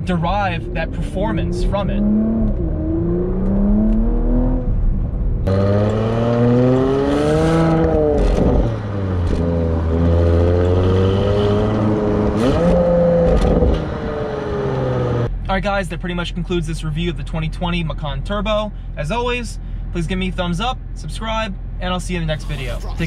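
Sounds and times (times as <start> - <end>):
car engine accelerating: 0.0 - 15.3.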